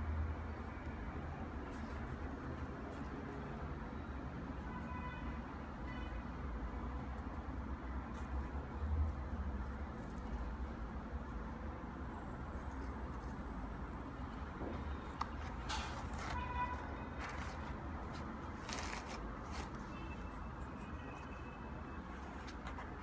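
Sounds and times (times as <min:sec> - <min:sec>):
hands rustling a knit sneaker: 0:15.2 - 0:19.9.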